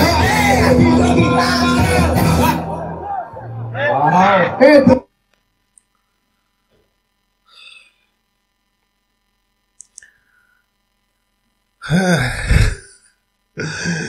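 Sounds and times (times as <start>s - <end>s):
man breathing out: 11.8s - 14.0s.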